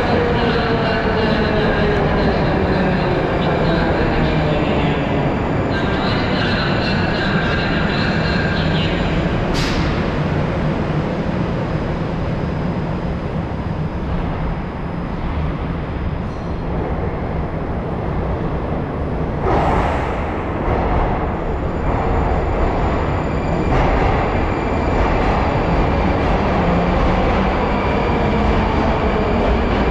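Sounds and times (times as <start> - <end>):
metro train rumbling: 0.0 - 29.9.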